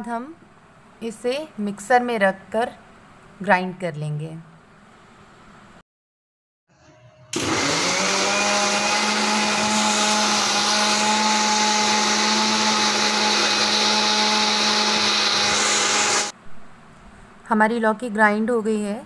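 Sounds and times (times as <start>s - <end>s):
mixer grinder motor running: 7.3s - 16.4s
jar grinding vegetable pulp: 7.6s - 16.3s.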